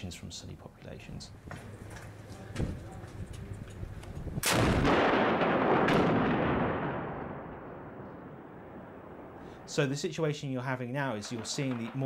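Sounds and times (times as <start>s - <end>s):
rocket launcher blast: 4.4s - 9.7s
sharp crack: 4.4s - 10.2s, 11.0s - 12.0s.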